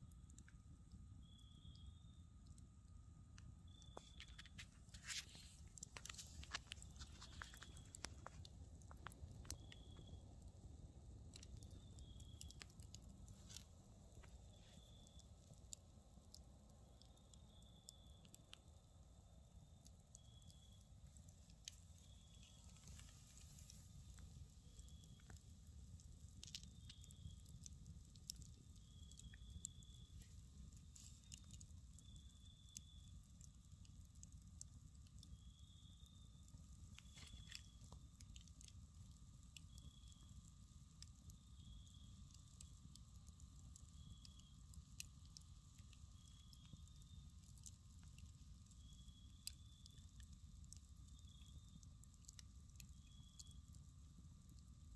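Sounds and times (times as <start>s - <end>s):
wood fire crackling: 0.0s - 54.9s.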